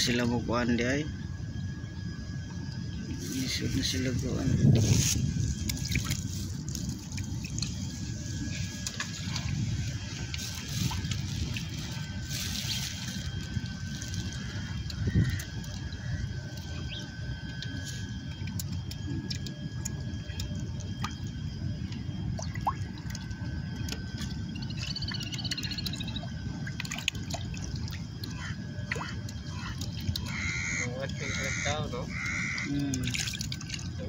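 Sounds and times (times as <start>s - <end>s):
steady low rumble: 0.0s - 34.0s
fish splashing at water surface: 22.4s - 34.0s
faint chirp: 24.5s - 26.3s.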